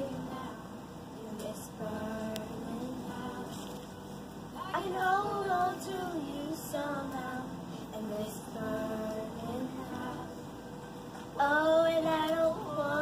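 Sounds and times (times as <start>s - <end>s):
girl singing slow song: 0.0s - 13.0s.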